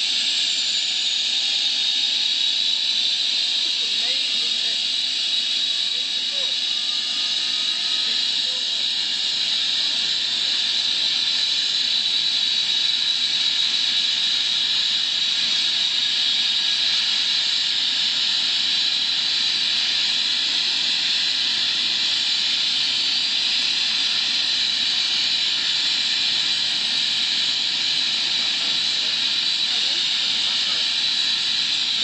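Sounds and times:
helicopter turbine and rotor hiss: 0.0s - 32.0s.

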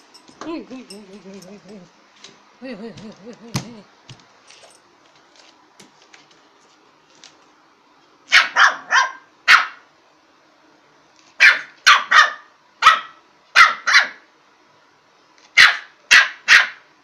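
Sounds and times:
puppy barking: 8.3s - 9.9s, 11.4s - 14.3s, 15.6s - 16.9s.

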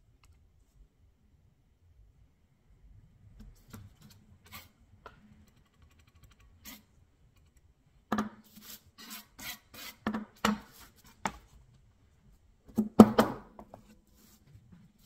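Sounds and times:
putty knife scraping board: 8.2s - 11.4s.

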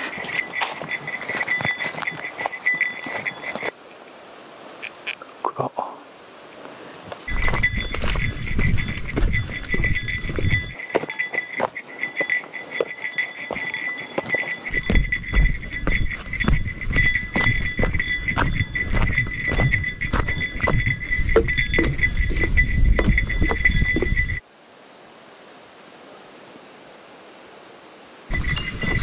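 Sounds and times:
handling noise: 0.0s - 3.7s, 7.2s - 24.4s, 28.3s - 29.0s
small bell jingling: 0.0s - 3.7s, 7.3s - 24.4s, 28.3s - 29.0s
footsteps on forest trail: 0.0s - 3.8s, 7.0s - 24.4s, 28.3s - 29.0s.

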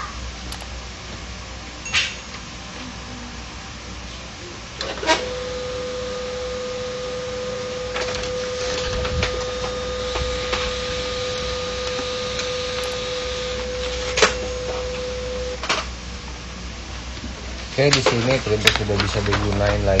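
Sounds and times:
laser printer humming: 2.6s - 16.9s
printer paper path clicks: 7.6s - 10.7s, 11.8s - 15.0s.

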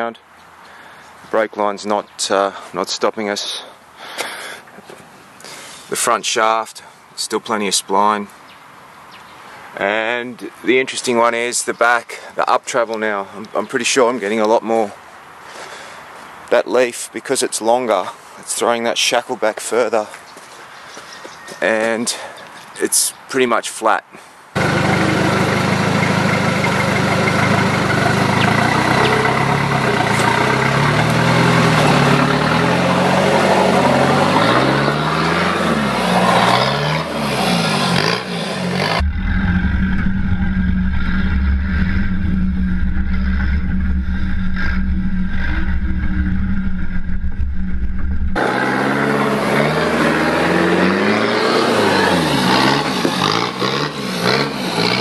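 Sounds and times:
diesel truck engine revving: 24.6s - 55.0s.

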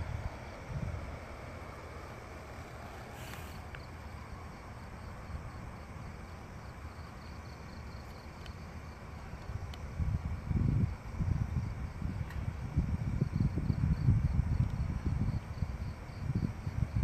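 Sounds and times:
crickets chirping: 0.0s - 17.0s
low outdoor rumble: 0.0s - 17.0s
short hiss: 2.8s - 3.8s.

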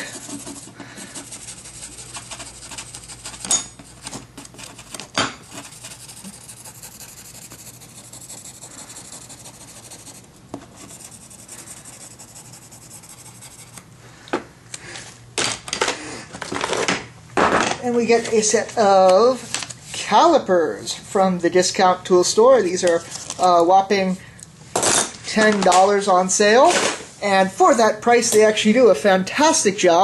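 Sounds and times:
marker scratching and rubbing: 0.0s - 13.8s.

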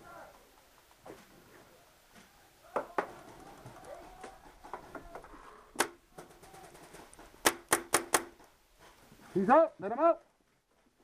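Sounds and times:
paintball marker shots: 7.4s - 8.4s.

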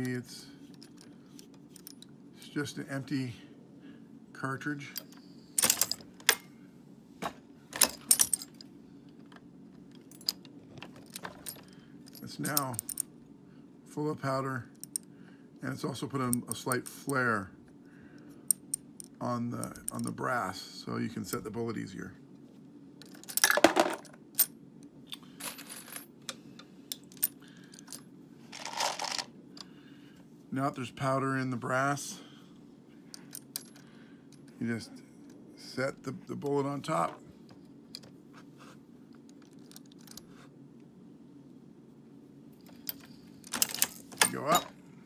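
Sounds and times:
faint low hum: 0.0s - 45.0s.

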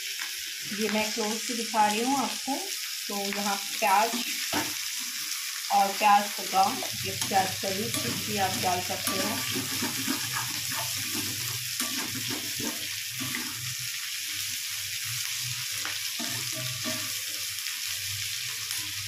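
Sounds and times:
vegetables sizzling in hot oil: 0.0s - 19.0s
spatula scraping wok: 6.5s - 13.9s, 16.1s - 17.5s.

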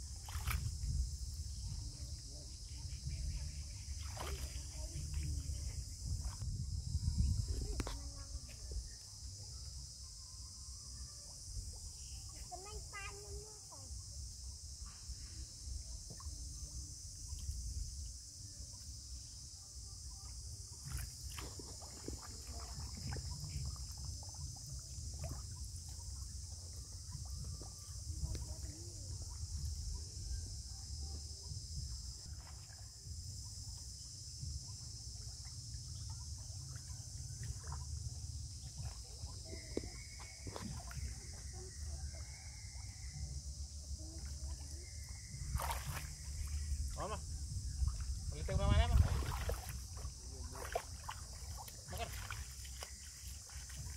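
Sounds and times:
high-pitched insect chorus: 0.0s - 53.9s
small water splashes and knocks: 0.1s - 1.0s, 3.9s - 5.4s, 20.7s - 29.7s, 32.2s - 33.1s, 35.2s - 41.5s, 45.3s - 46.6s, 47.9s - 53.9s.

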